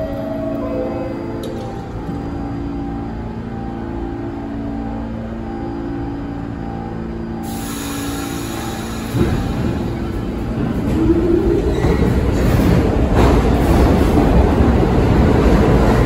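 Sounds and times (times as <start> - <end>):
subway train hum: 0.0 - 16.0
wheels rumbling on rails: 8.4 - 16.0.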